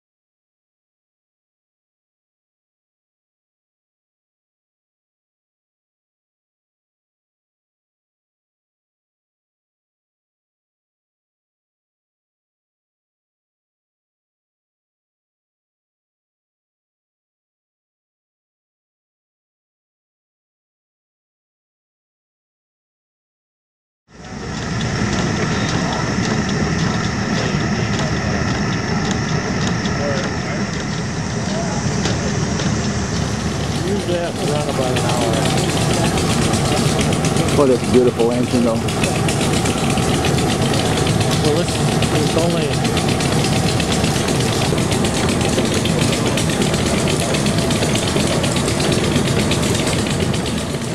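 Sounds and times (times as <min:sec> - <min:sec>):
hot air engine running: 0:24.1 - 0:50.9
light regular engine click: 0:24.2 - 0:50.9.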